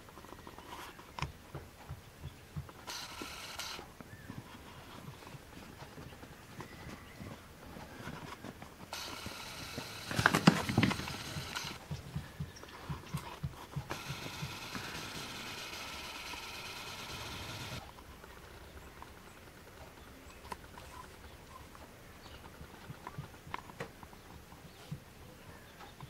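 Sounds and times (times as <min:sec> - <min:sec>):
small clicks: 0:02.6 - 0:04.1, 0:07.8 - 0:11.8, 0:12.6 - 0:18.1
steady hiss: 0:08.8 - 0:11.9, 0:13.8 - 0:17.9.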